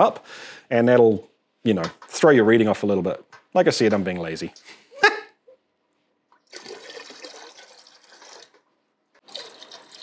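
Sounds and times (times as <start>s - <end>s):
water pouring into metal pot: 6.4s - 10.0s.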